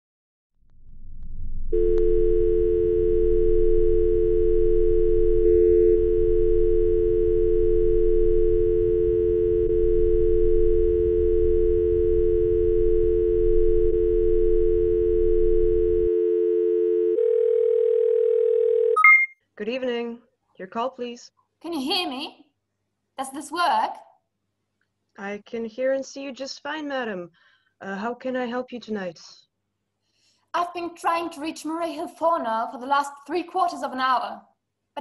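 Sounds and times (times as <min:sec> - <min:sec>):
telephone dial tone: 0:01.8 - 0:19.1.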